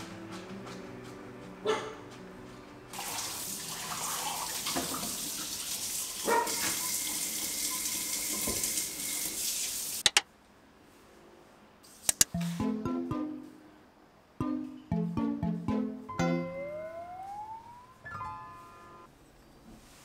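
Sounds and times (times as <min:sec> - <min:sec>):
faucet water splashing in sink: 0:02.9 - 0:10.0
short sharp clicks: 0:12.0 - 0:12.4.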